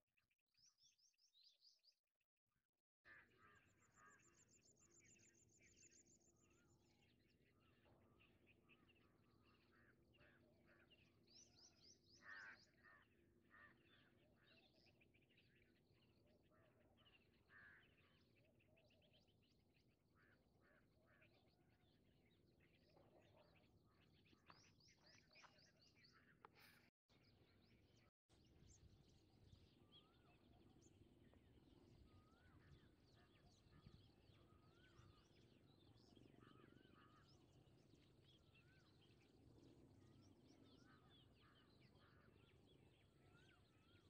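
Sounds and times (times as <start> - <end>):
small birds chirping: 3.5 - 44.0.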